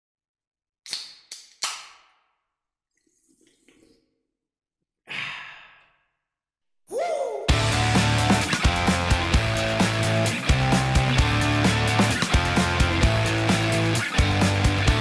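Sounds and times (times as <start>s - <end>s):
long breathy sigh: 5.1s - 6.2s.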